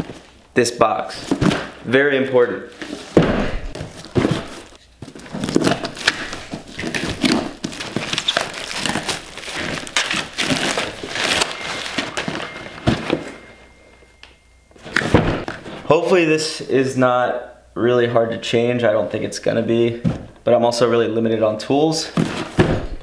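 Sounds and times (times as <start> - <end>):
cardboard box handled: 2.8 - 13.5
plastic wrap crinkling and tearing: 5.0 - 12.9.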